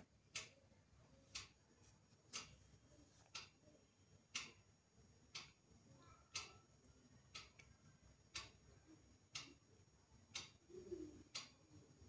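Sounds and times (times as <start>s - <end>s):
clock ticking: 0.0s - 0.6s, 1.2s - 1.6s, 2.2s - 12.0s.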